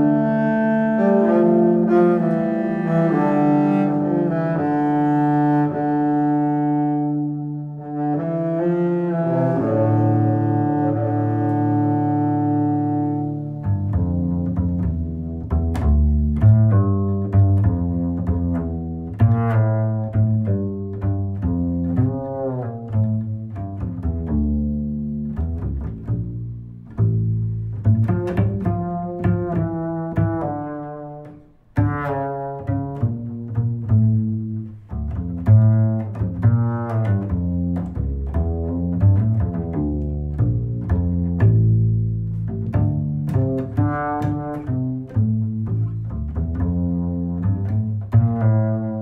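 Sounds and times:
low string instruments melody: 0:00.0 - 0:49.0.

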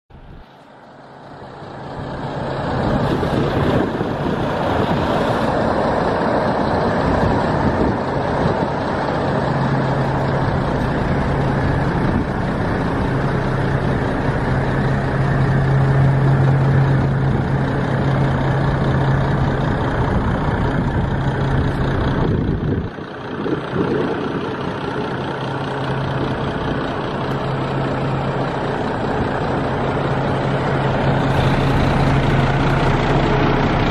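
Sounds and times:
truck diesel engine idling: 0:00.1 - 0:33.9.

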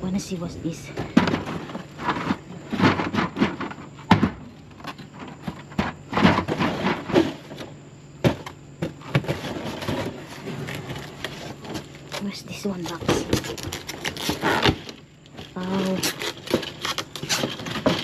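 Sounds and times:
boxes knocking in metal dumpster: 0:00.8 - 0:10.3
cardboard scraping and rustling: 0:01.0 - 0:18.0.

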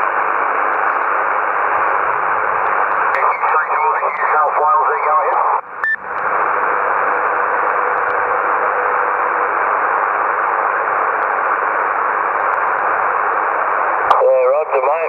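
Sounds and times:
radio receiver hiss: 0:00.0 - 0:15.0.

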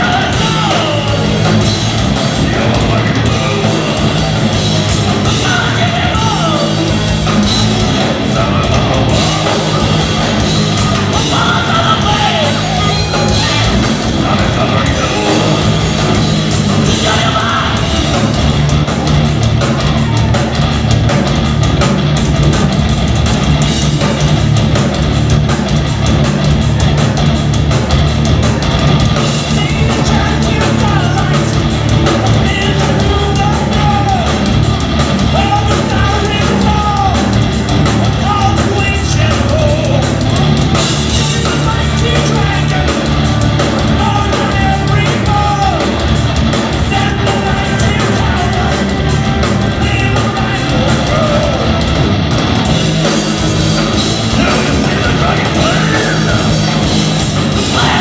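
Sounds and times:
person singing: 0:00.0 - 0:07.3, 0:08.0 - 0:18.3, 0:29.4 - 0:34.5, 0:35.3 - 0:37.5, 0:41.1 - 0:46.1, 0:46.7 - 0:51.9, 0:54.3 - 0:58.0
drums keeping a beat: 0:00.0 - 0:58.0
metal band playing live: 0:00.0 - 0:58.0.

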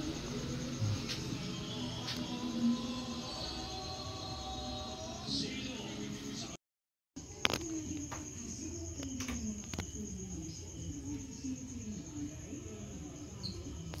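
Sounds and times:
crickets chirping: 0:00.0 - 0:06.6, 0:07.2 - 0:14.0
faint distant voices: 0:07.2 - 0:14.0.

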